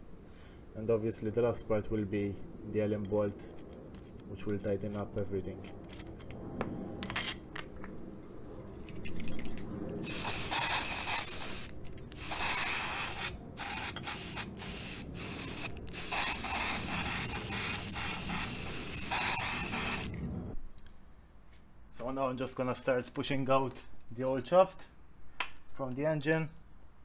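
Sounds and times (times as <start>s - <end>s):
aerosol can spraying: 10.0s - 20.2s.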